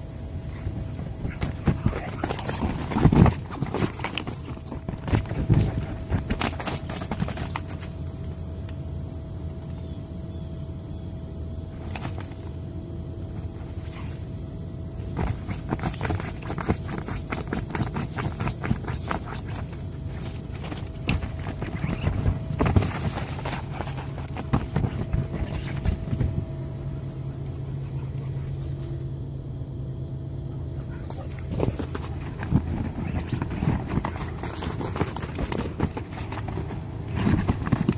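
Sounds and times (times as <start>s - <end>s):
puppy paws thumping on vinyl: 0.6s - 7.9s, 15.1s - 26.7s, 31.1s - 37.9s
blower fan hum and rumble: 11.4s - 37.9s.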